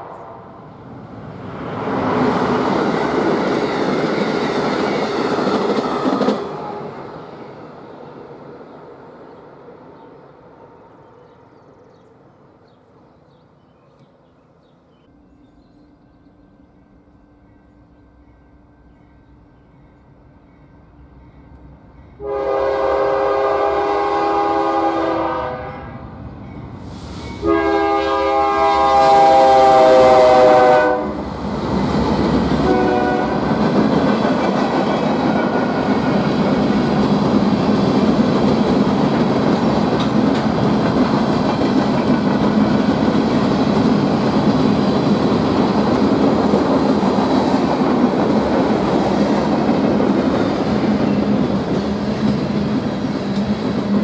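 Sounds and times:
train wheels rumbling on rail: 1.0s - 10.3s, 18.3s - 54.0s
locomotive air horn blasts: 22.2s - 26.0s, 27.4s - 31.2s, 32.6s - 33.5s.

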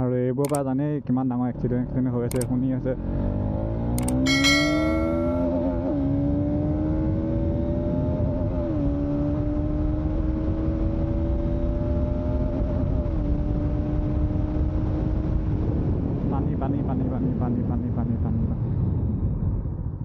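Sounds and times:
motorcycle engine cruising: 1.7s - 15.4s
short chime: 4.0s - 5.7s.

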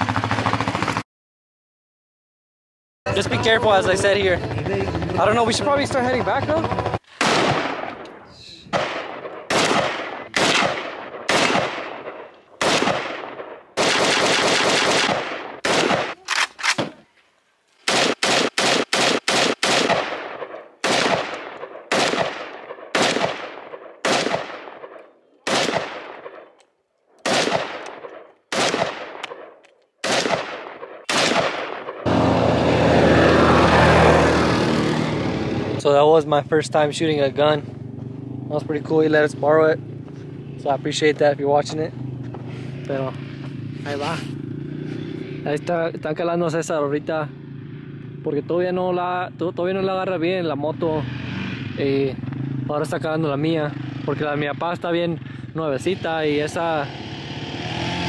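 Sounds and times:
utility vehicle engine running: 0.0s - 1.0s, 3.1s - 7.1s, 36.4s - 46.1s
gunshots with echo: 6.5s - 8.1s, 8.7s - 17.0s, 17.8s - 26.6s, 27.2s - 32.3s.

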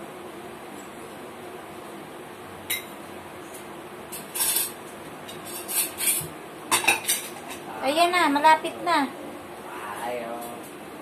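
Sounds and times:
dishes and cutlery clinking: 4.2s - 7.7s.

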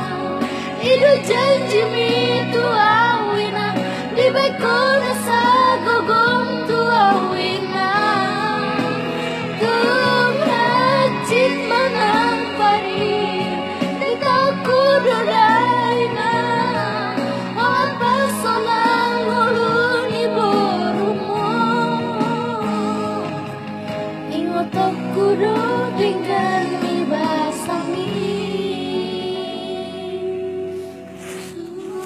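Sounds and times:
instrumental backing: 0.0s - 32.0s
woman singing: 0.0s - 32.0s.

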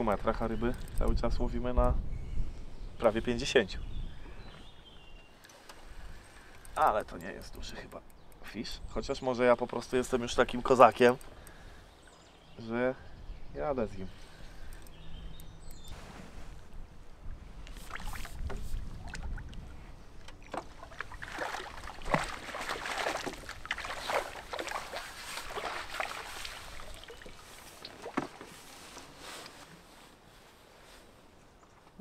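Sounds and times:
net lifted out of water: 20.4s - 29.5s
fish splashing in water: 20.8s - 28.4s.

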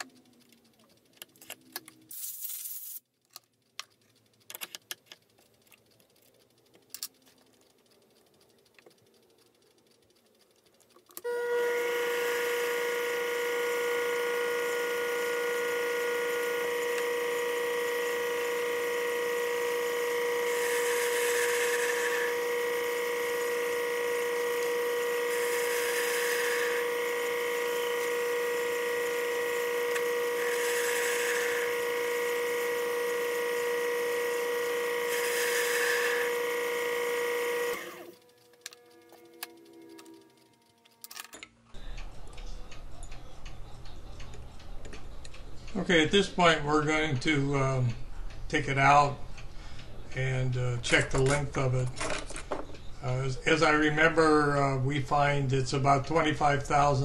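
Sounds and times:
lathe motor whine: 11.2s - 41.0s
cutting tool hiss: 11.3s - 38.3s.

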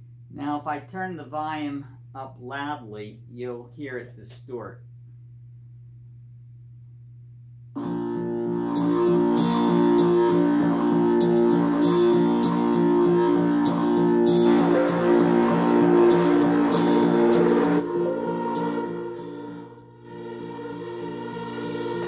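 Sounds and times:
guitar rock music through speakers: 7.8s - 22.0s.

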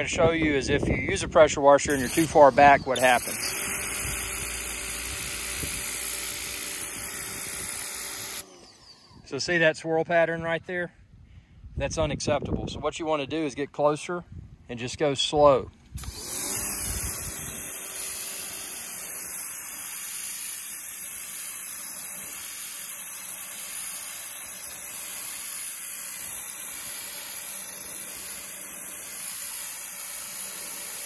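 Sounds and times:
pressure washer spraying concrete: 1.9s - 8.6s, 16.0s - 31.0s.

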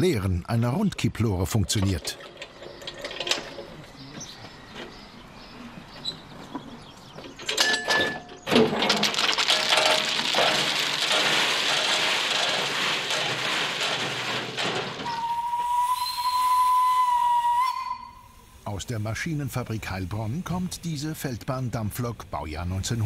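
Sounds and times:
metal clanks: 1.6s - 5.0s, 7.2s - 15.3s
crushed stone pouring out: 8.5s - 15.2s
metal screech: 13.8s - 16.4s.

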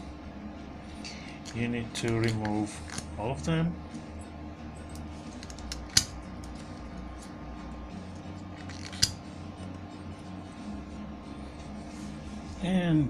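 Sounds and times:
rubber valve caps clicking off: 1.4s - 3.1s, 4.9s - 7.0s, 8.6s - 9.2s.

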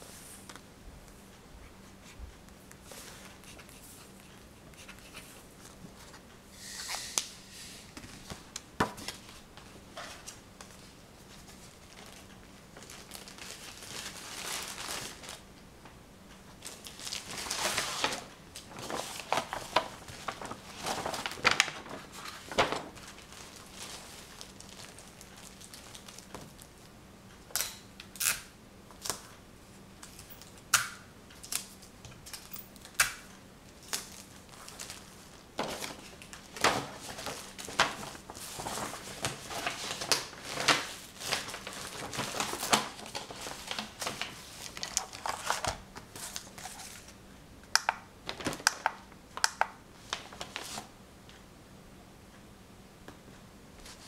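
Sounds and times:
crinkling and rustling: 7.9s - 15.5s, 16.5s - 26.9s, 33.7s - 47.2s, 48.2s - 50.9s.

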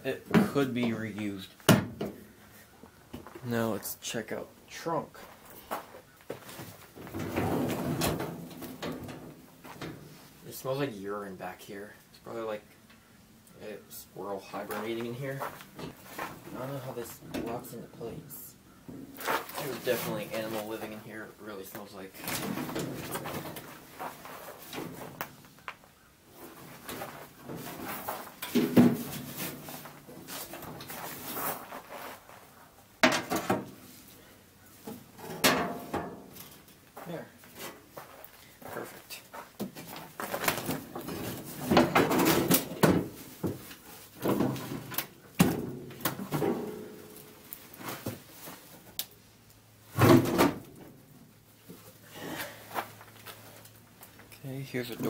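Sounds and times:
rustling of debris: 5.1s - 10.8s, 14.4s - 55.0s
knocks and clatter of handling: 6.3s - 10.1s, 22.2s - 25.8s, 26.4s - 31.3s, 33.0s - 33.8s, 34.8s - 36.8s, 39.6s - 48.6s.

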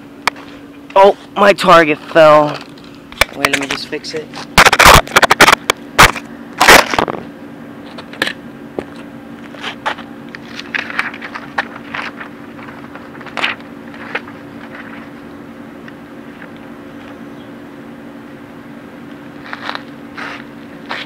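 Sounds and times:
steady low hum: 0.0s - 21.0s
paper rustling: 10.4s - 15.2s.

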